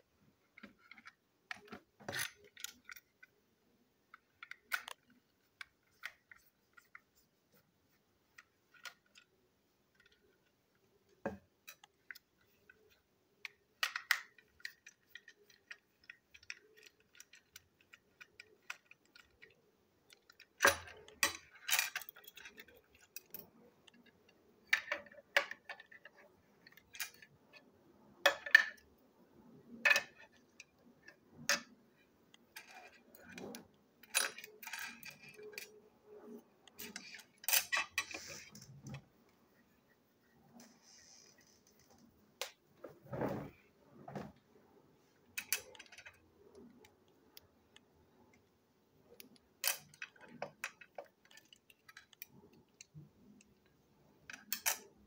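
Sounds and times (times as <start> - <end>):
plastic parts clicking on tabletop: 4.0 - 7.0, 8.3 - 27.4, 45.3 - 47.8, 49.1 - 55.0.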